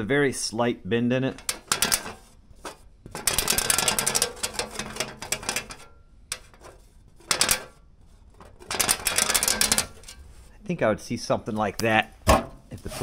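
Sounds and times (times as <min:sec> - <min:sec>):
metal rod rolling on sheet metal: 0:01.3 - 0:10.5.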